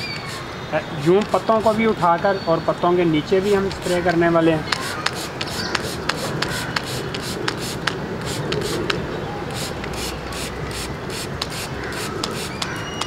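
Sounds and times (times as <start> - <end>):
spray bottle clicking and spritzing: 0.0 - 0.5, 4.7 - 13.0.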